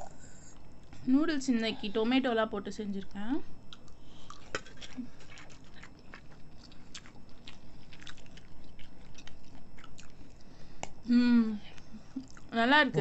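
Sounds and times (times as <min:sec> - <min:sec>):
people chewing noodles: 0:03.7 - 0:12.5.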